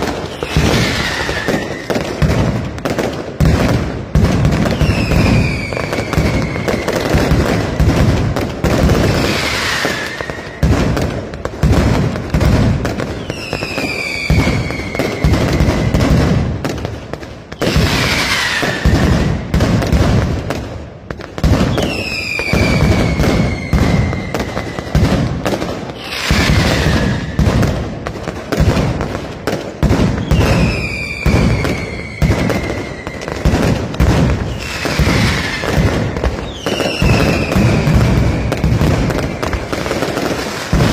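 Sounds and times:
falling firework whistles: 0:00.0 - 0:02.4, 0:04.5 - 0:07.9, 0:08.6 - 0:11.0, 0:13.0 - 0:16.3, 0:17.4 - 0:20.0, 0:21.4 - 0:27.8, 0:29.9 - 0:40.9
firecracker bangs and crackling: 0:00.0 - 0:40.9.

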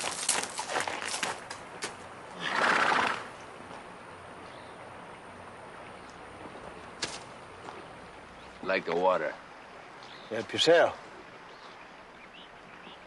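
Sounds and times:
horse hooves clopping: 0:00.0 - 0:04.6
horse whinnying: 0:02.4 - 0:03.3.

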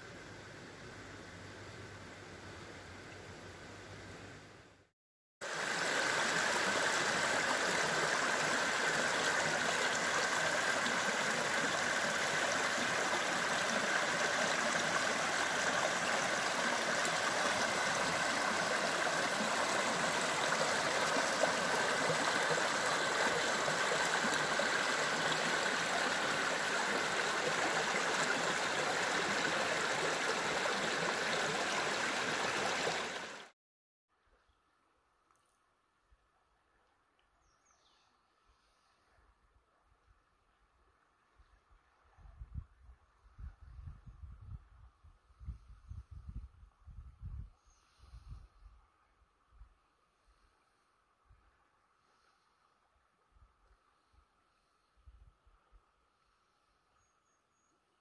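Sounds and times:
river water rushing over gravel: 0:05.4 - 0:33.5.

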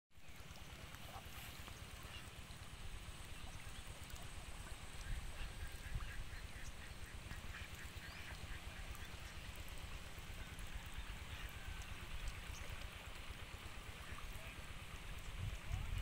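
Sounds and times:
ducks quacking: 0:04.9 - 0:09.8.

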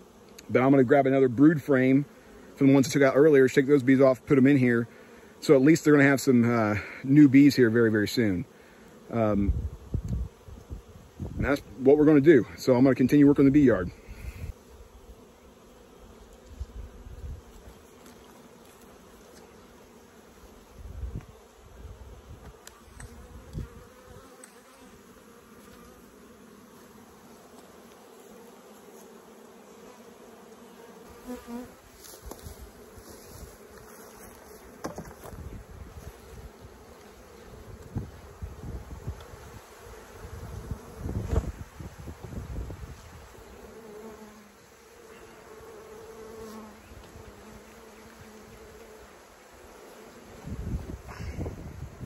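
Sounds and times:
bees buzzing: 0:00.0 - 0:52.0
hive boxes knocking: 0:34.7 - 0:35.5.

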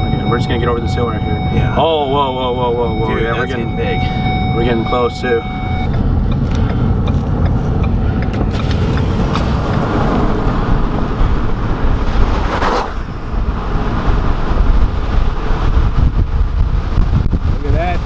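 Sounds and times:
car road noise: 0:00.0 - 0:18.0
wind buffeting microphone: 0:05.6 - 0:18.0.

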